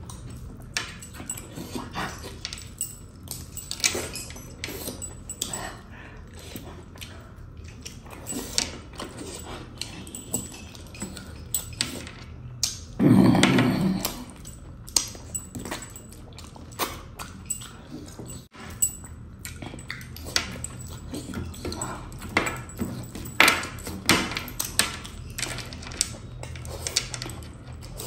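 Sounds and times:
man chewing with lip smacks: 19.1s - 22.2s.

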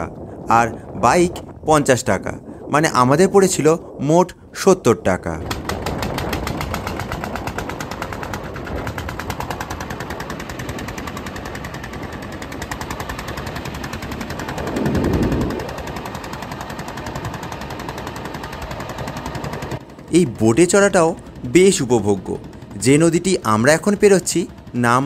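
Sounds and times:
boat engine chugging: 0.0s - 25.0s
rush of noise: 5.3s - 20.4s.

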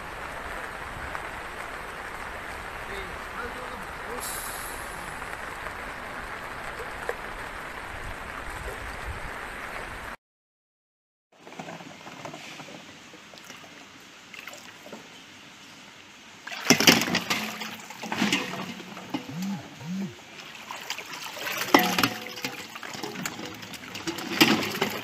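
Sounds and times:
wading through sloshing water: 13.2s - 15.1s, 16.4s - 25.0s.

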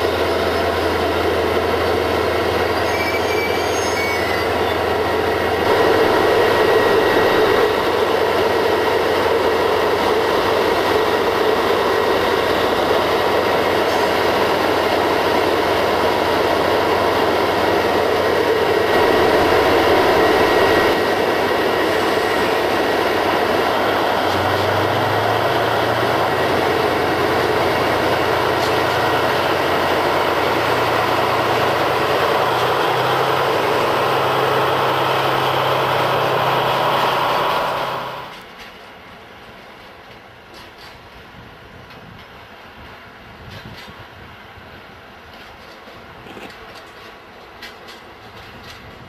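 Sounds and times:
train engine hum shifting pitch: 0.0s - 38.4s
diesel locomotive drone: 0.0s - 49.0s.

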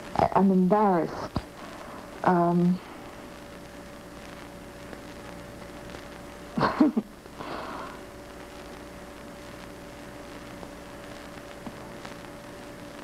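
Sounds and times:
faint steady hum: 0.0s - 13.0s
woman laughing: 6.6s - 7.2s
breathy exhale: 7.4s - 8.0s.

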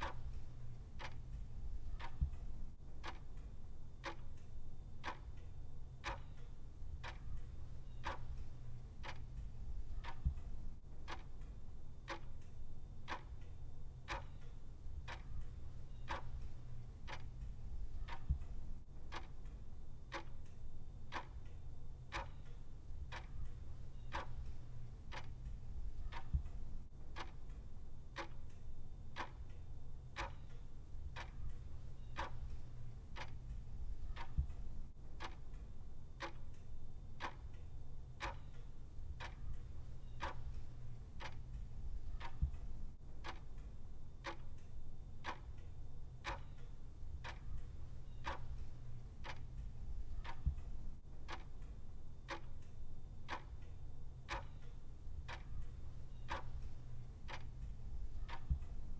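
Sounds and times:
clock ticking: 0.0s - 58.9s
low hum: 54.8s - 58.9s.

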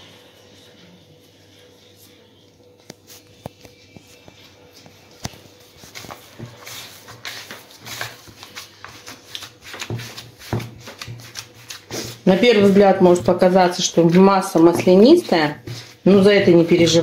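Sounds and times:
hands kneading sticky mixture: 4.7s - 17.0s.

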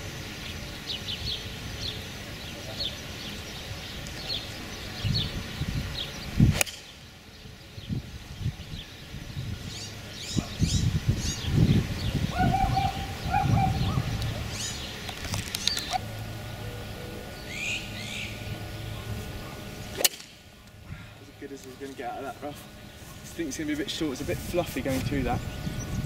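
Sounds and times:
wind rumble on microphone: 0.0s - 16.0s, 22.8s - 26.0s
lower held bird calls: 0.0s - 26.0s
small birds chirping: 0.0s - 26.0s
golf club striking ball: 6.5s - 7.0s, 19.9s - 20.5s.

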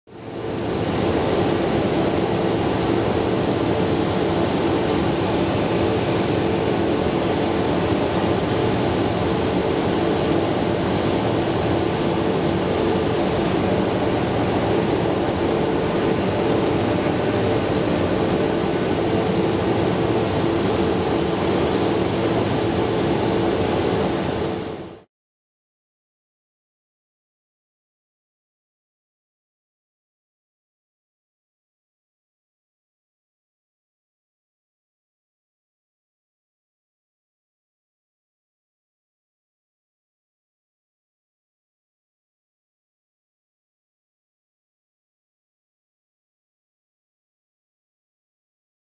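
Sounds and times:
milling machine humming: 0.4s - 24.8s.

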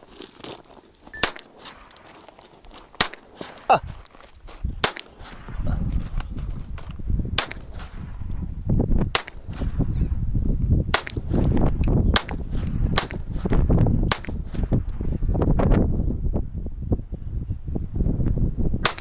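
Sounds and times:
handgun shots: 1.2s - 2.0s, 3.0s - 3.8s, 4.8s - 5.7s, 7.4s - 7.9s, 12.1s - 13.5s.

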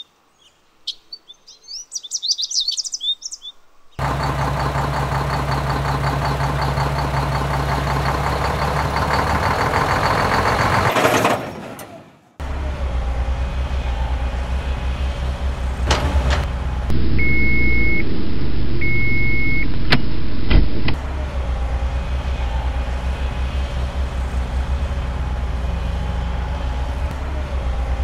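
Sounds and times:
diesel engine running: 4.0s - 28.0s
reversing alarm beeps: 17.0s - 18.1s, 18.8s - 19.7s.

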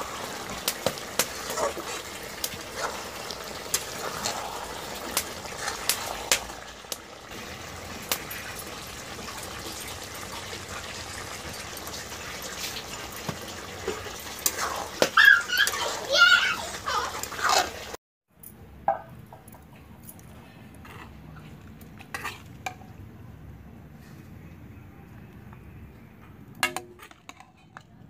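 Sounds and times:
curry bubbling and popping: 0.0s - 18.0s.

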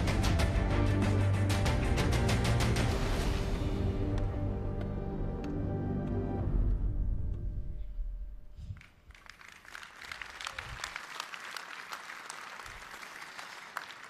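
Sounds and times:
music with deep bass: 0.0s - 8.0s
audience applauding: 8.8s - 14.0s.

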